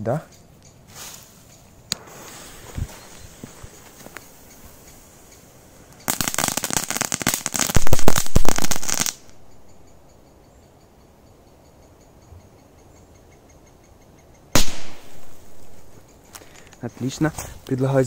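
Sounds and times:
firework crackling: 0:01.0 - 0:09.4, 0:14.6 - 0:15.9.

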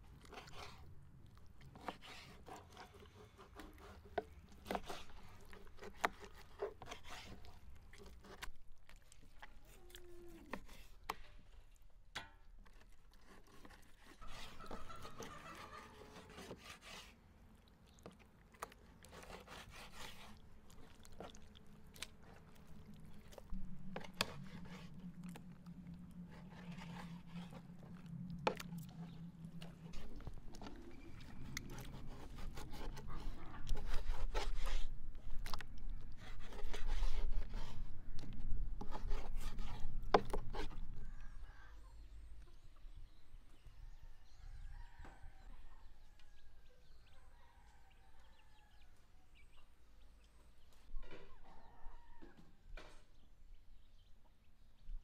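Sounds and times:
wet rubbing of tripe: 0:01.6 - 0:11.0, 0:12.8 - 0:17.2, 0:19.0 - 0:38.1.

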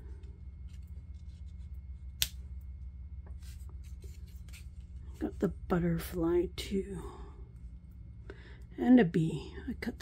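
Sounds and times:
steady low hum: 0:00.0 - 0:10.0
paper rustling and scratching: 0:00.6 - 0:02.1, 0:03.4 - 0:05.3.

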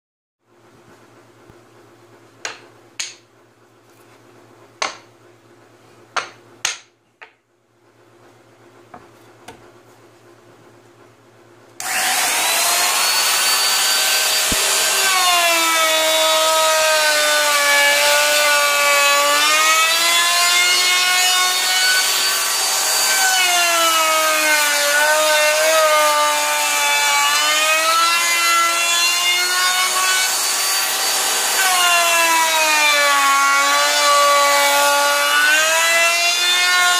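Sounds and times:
wooden knocks: 0:06.2 - 0:07.4
handheld router whining: 0:11.8 - 0:36.9.

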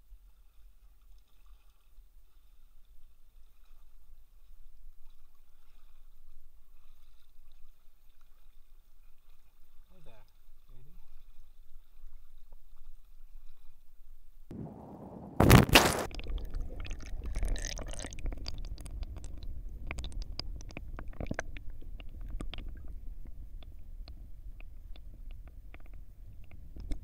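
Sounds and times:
underwater rumble of moving water: 0:14.0 - 0:27.0
underwater clicks and ticks: 0:16.0 - 0:27.0.

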